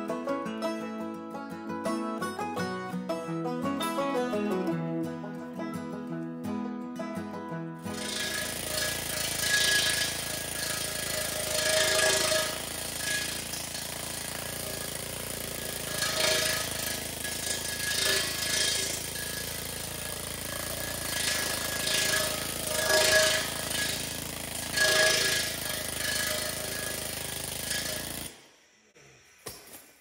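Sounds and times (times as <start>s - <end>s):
needle scaler hammering steel: 7.9s - 28.4s.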